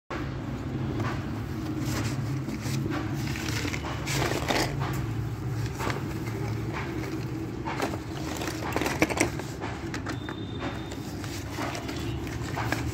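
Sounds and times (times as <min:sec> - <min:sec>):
plastic bag rustling and crinkling: 0:01.4 - 0:09.6.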